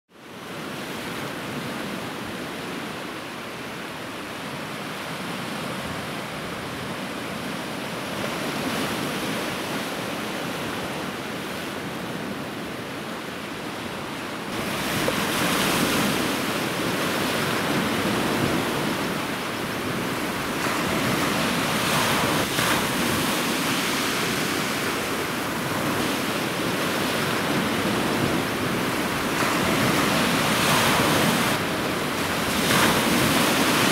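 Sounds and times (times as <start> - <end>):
surf breaking over rocks: 14.5 - 33.9.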